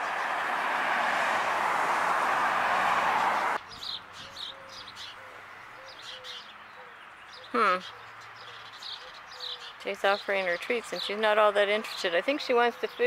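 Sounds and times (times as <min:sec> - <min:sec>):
small birds chirping: 0:03.2 - 0:13.0.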